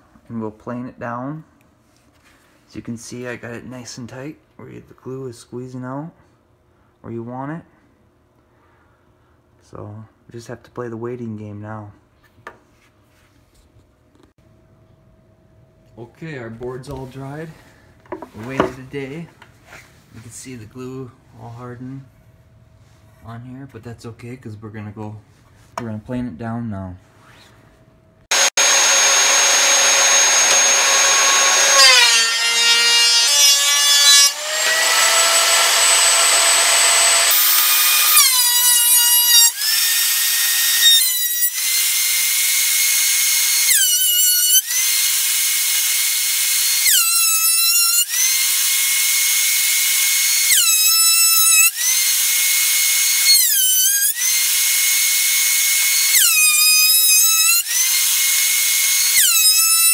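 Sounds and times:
thickness planer whining: 28.3 - 59.9.

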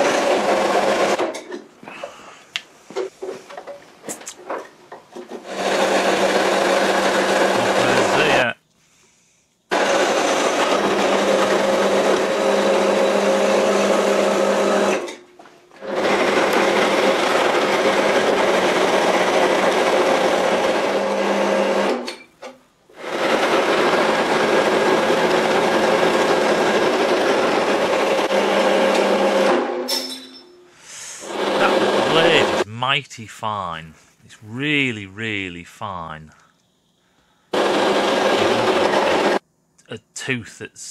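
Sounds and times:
bandsaw motor hum: 37.6 - 39.4.

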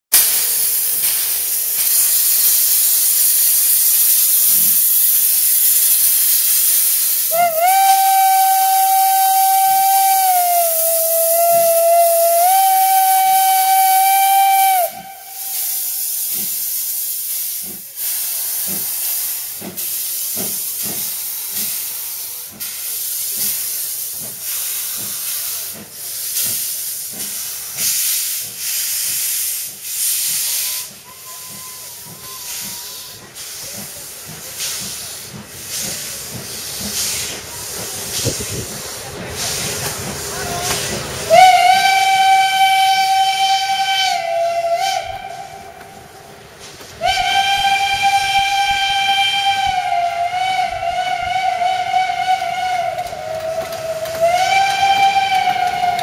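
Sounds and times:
hissing steam: 0.2 - 56.0
steam locomotive exhaust chuffs: 0.2 - 56.0
steam locomotive whistle: 3.6 - 16.4, 30.0 - 33.4, 40.4 - 46.2, 47.0 - 56.0.

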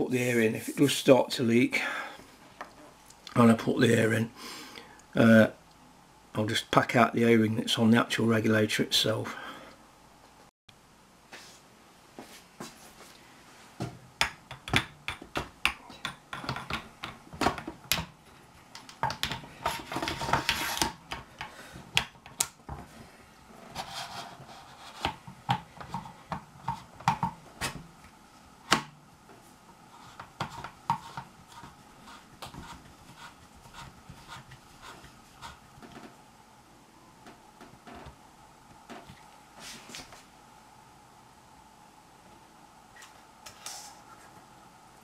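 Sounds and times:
sharp clicks and knocks: 14.2 - 22.9.

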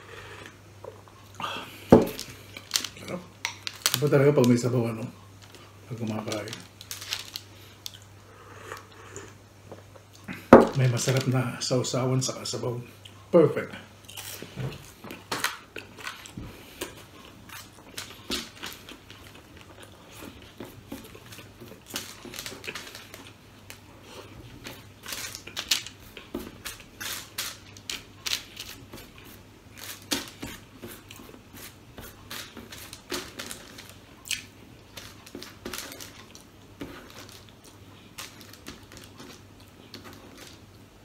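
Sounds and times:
chewing and crunching: 14.0 - 40.8.

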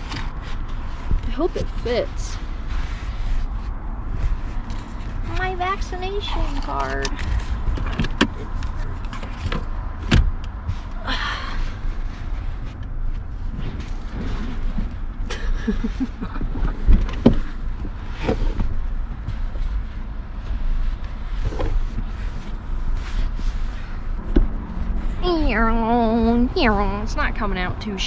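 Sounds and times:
low steady rumble: 0.0 - 28.0.

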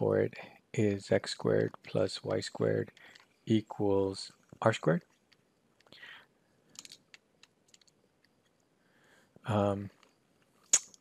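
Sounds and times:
stylus clicking on pen tablet: 6.7 - 8.6.

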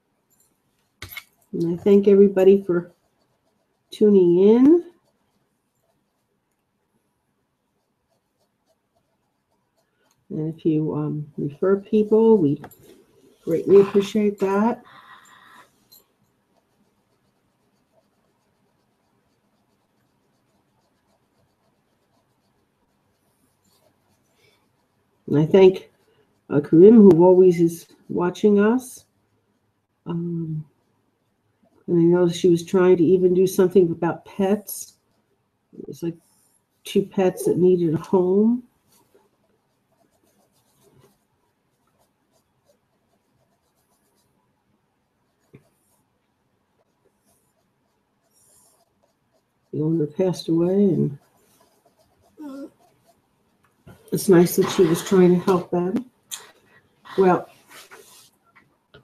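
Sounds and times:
light scratches and rustles: 0.3 - 6.7, 7.6 - 31.0, 31.6 - 44.4, 45.0 - 59.0
hand stroking fur rustling: 57.2 - 58.4.

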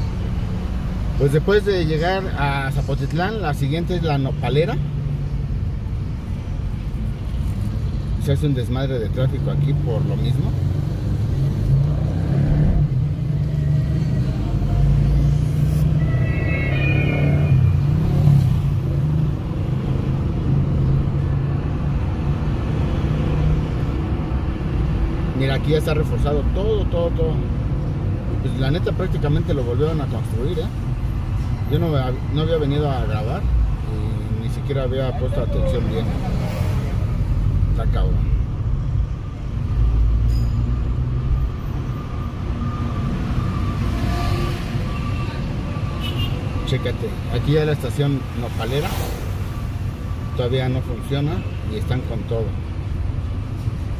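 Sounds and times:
road noise: 0.0 - 53.9
vehicle engine rumble: 0.0 - 53.9
high-pitched whine: 14.6 - 18.0.

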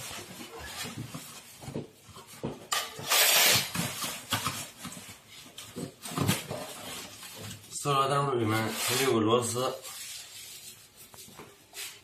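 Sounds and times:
plastic and cardboard rustling: 0.0 - 2.8, 3.4 - 12.0.

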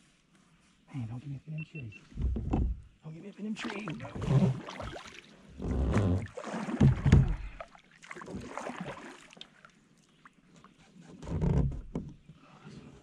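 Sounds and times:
kayak paddle strokes in water: 3.6 - 12.0.

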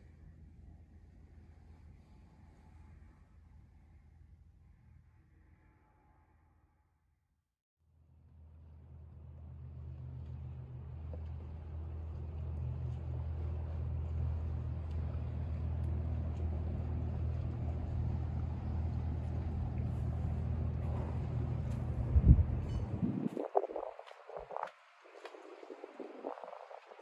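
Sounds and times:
low engine drone: 8.2 - 27.0.

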